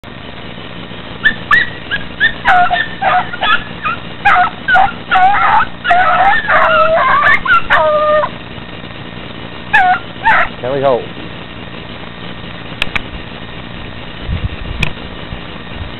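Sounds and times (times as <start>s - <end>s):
hound puppies baying: 1.2s - 8.4s, 9.7s - 10.6s.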